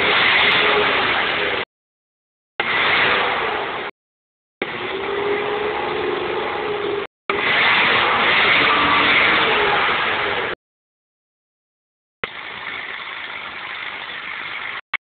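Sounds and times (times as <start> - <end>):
loud open exhaust engine: 4.6 - 10.6.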